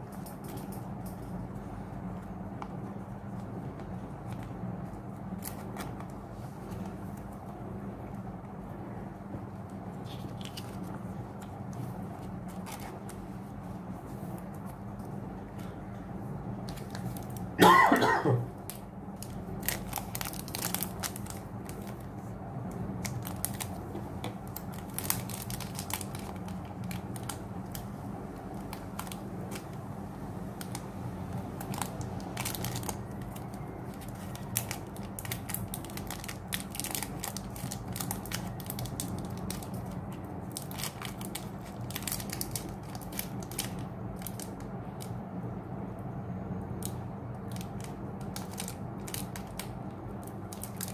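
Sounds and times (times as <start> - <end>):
steady low hum: 0.0 - 50.9
foil wrapper crinkling: 9.9 - 13.2, 16.6 - 17.6, 18.6 - 29.8, 30.5 - 45.2, 46.8 - 50.9.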